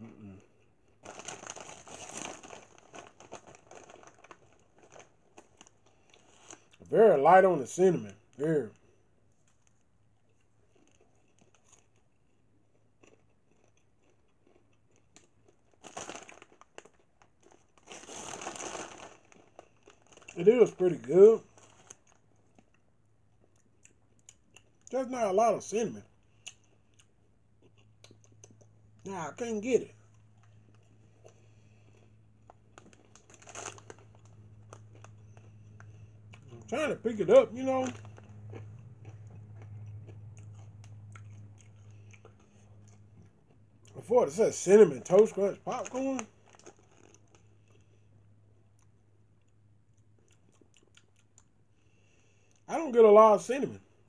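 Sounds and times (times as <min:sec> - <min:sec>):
plastic snack bag crinkling: 0:00.9 - 0:06.9, 0:13.0 - 0:22.8, 0:30.4 - 0:40.0, 0:44.5 - 0:48.0.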